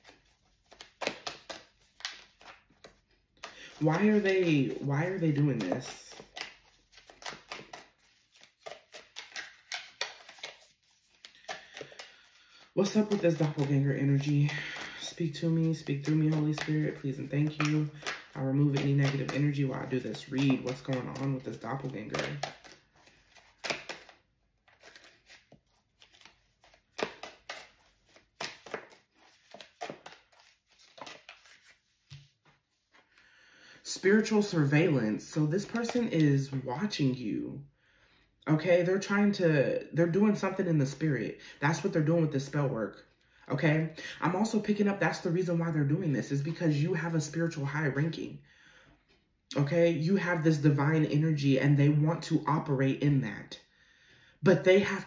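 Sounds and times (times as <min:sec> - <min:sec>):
cards being shuffled: 0:00.0 - 0:33.2, 0:33.9 - 0:37.2.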